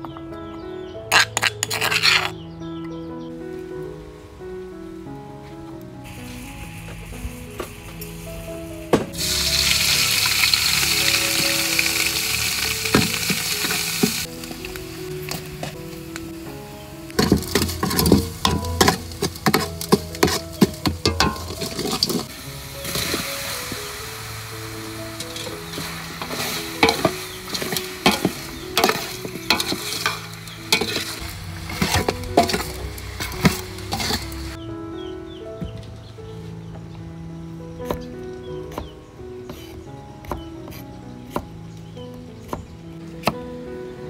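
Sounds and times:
spice paste sizzling in oil: 1.1s - 2.3s, 6.0s - 34.6s
metal ladle clinking on pot: 17.2s - 22.3s, 25.3s - 34.4s.

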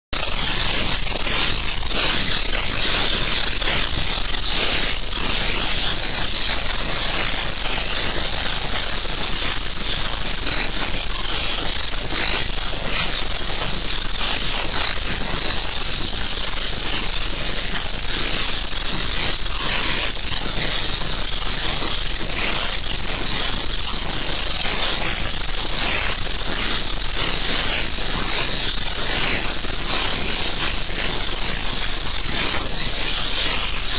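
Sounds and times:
night insects trilling: 0.2s - 33.9s.

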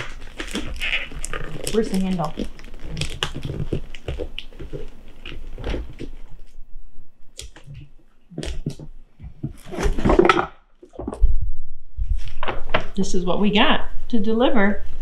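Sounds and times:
wrapping paper crinkling: 0.0s - 6.6s.

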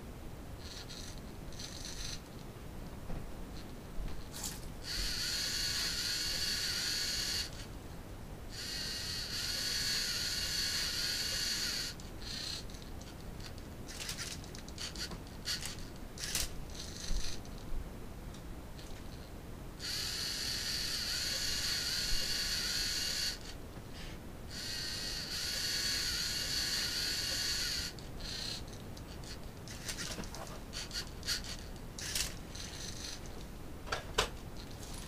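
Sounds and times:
gear clicks and whirs: 0.6s - 2.5s, 3.6s - 7.7s, 8.5s - 17.7s, 18.8s - 23.6s, 24.5s - 34.0s
servo motor high whine: 4.5s - 7.6s, 8.5s - 12.7s, 19.8s - 23.5s, 24.5s - 28.7s.

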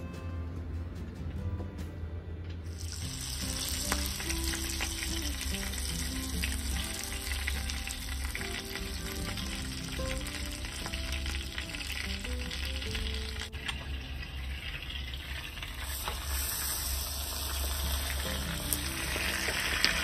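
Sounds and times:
background music: 0.0s - 14.4s, 16.4s - 20.0s
butter sizzling in a frying pan: 2.7s - 20.0s.

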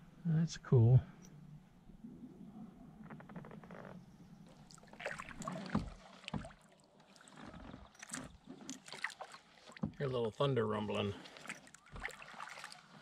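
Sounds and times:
paddle splashing in water: 4.5s - 13.0s.

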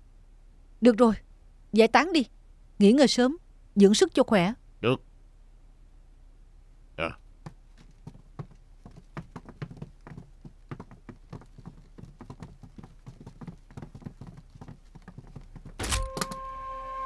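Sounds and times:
footsteps of several people: 7.4s - 16.0s.

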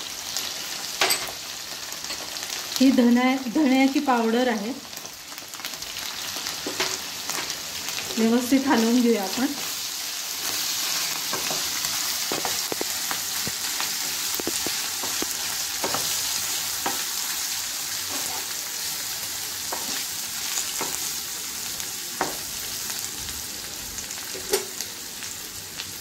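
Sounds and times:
vegetables sizzling in oil: 0.0s - 26.0s
spatula knocking and scraping pan: 6.6s - 7.6s, 11.3s - 17.2s, 18.0s - 18.5s, 19.6s - 20.1s, 20.7s - 21.1s, 22.2s - 22.5s.

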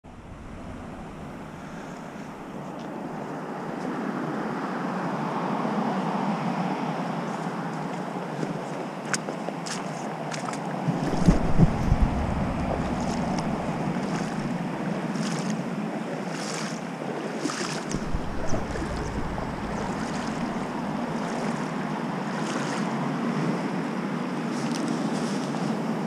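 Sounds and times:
wind buffeting microphone: 0.0s - 3.7s, 10.8s - 16.1s, 17.8s - 23.7s
flowing river water: 0.1s - 26.0s.

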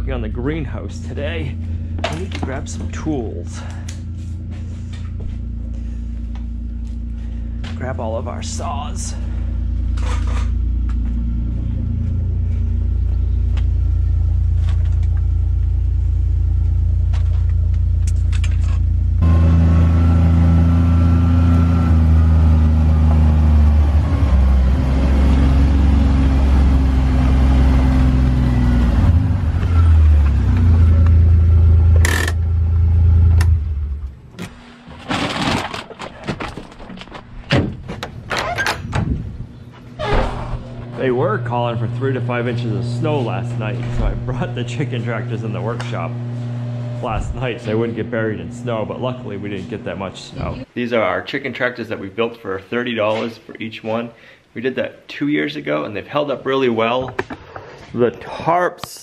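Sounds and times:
utility vehicle engine: 0.0s - 50.7s
clunks: 1.0s - 15.8s, 16.4s - 19.1s, 31.9s - 41.2s, 43.0s - 47.9s.

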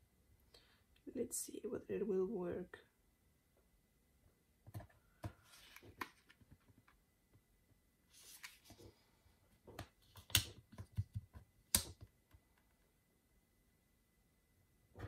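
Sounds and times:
paper rustling: 5.2s - 6.9s, 8.1s - 9.0s.

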